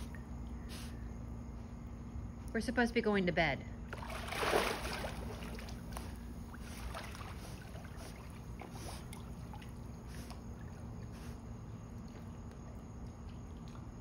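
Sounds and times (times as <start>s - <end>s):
water sloshing and lapping: 3.8s - 14.0s
dog splashing into pool: 3.9s - 11.1s.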